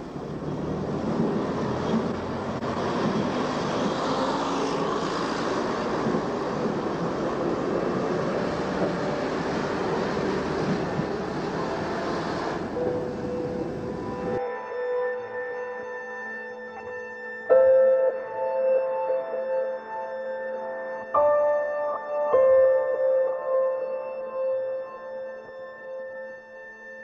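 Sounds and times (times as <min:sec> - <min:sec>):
diesel train running: 0:00.0 - 0:14.4.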